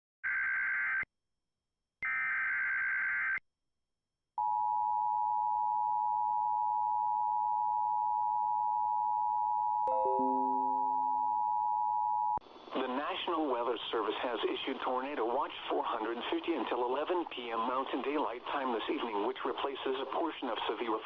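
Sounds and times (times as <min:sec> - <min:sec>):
two-tone alert signal: 0:09.9 - 0:11.2.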